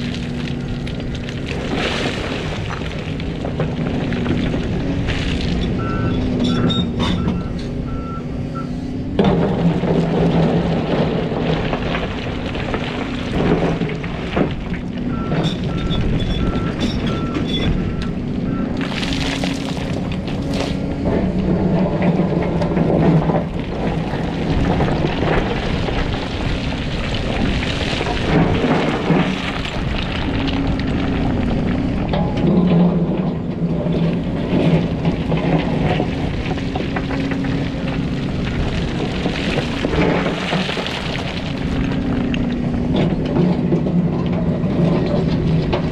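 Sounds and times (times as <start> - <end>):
excavator diesel engine: 0.0 - 45.9
rocks clattering against bucket: 18.7 - 45.9.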